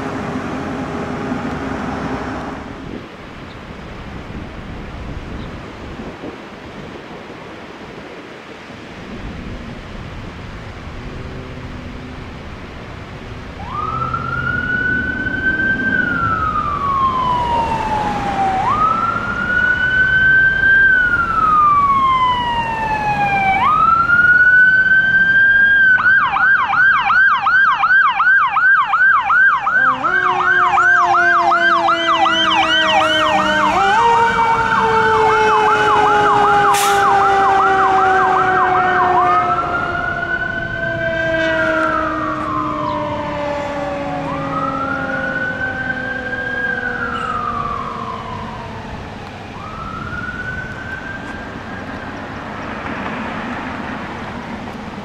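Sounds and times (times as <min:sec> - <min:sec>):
road noise: 0:00.0 - 0:55.0
fire engine siren wailing and yelping: 0:13.1 - 0:55.0.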